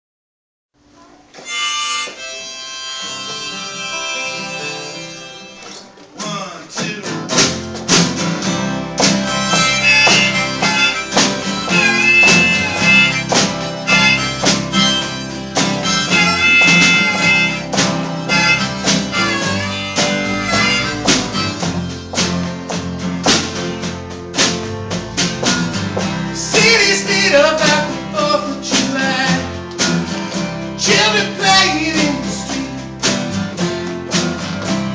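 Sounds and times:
acoustic guitars: 0.9 - 34.9
harmonica solo: 1.4 - 5.9, 9.1 - 22.4
drums: 5.7 - 34.9.

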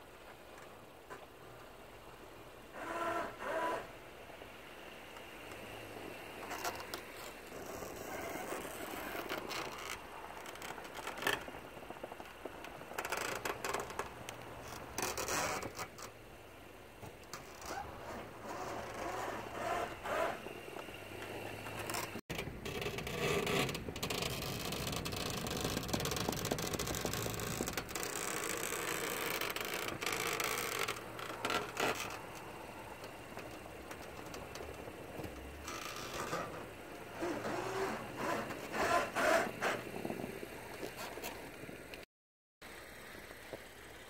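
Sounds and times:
plow blade scraping snow: 2.0 - 41.9.

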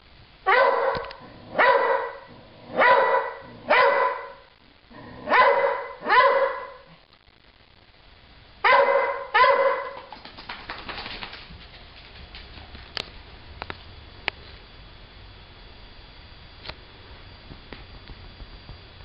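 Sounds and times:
dog barking: 0.5 - 4.4, 5.0 - 6.9, 8.6 - 10.1.

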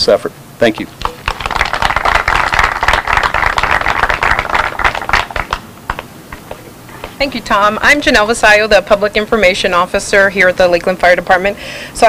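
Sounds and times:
audience applauding: 1.0 - 6.0.

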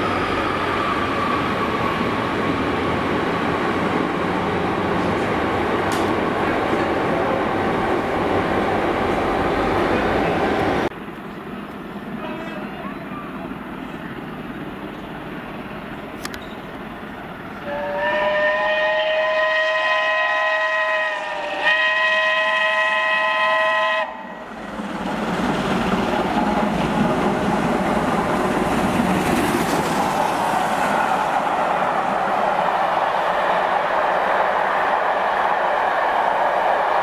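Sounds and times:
train rolling past: 0.0 - 37.0
steam locomotive whistle: 17.6 - 24.5.

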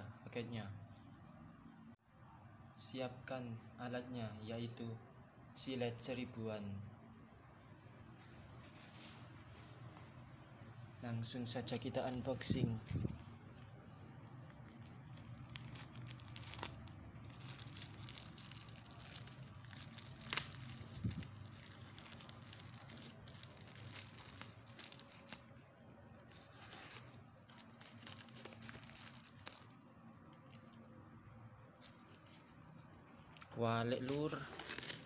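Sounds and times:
plastic wrapping crinkling and tearing: 11.7 - 30.8, 31.8 - 35.0.

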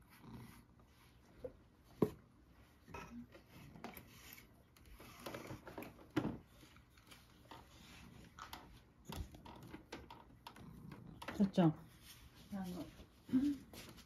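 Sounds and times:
brush rustling through fur: 11.9 - 14.0.

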